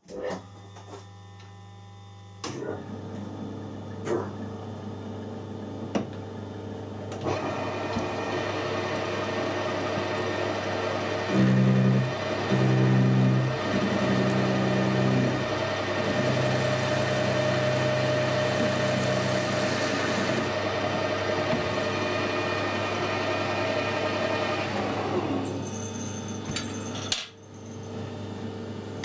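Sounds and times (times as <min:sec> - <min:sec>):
metal lathe running: 0:07.2 - 0:27.2.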